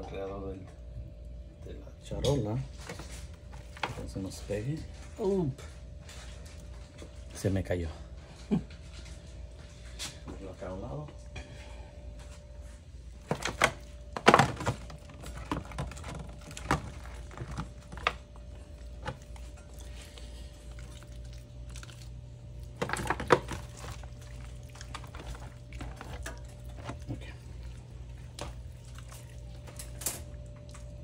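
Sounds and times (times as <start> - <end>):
faint steady hum: 0.0 - 31.0
things knocking and thudding: 13.2 - 18.2.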